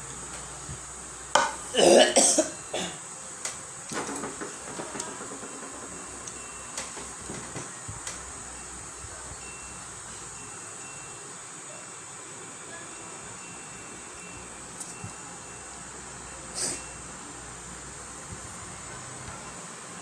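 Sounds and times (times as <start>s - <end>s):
person coughing: 1.7s - 3.0s
plastic tumblers tapping on table: 3.9s - 7.7s.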